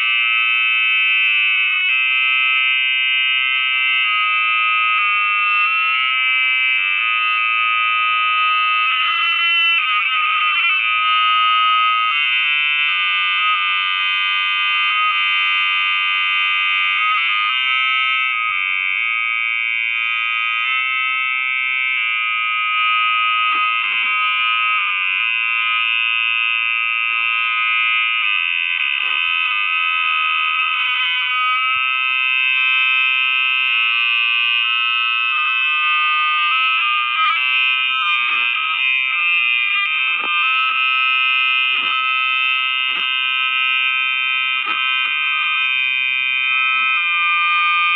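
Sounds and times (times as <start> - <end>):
shrill audio feedback ringing: 0.0 - 47.9.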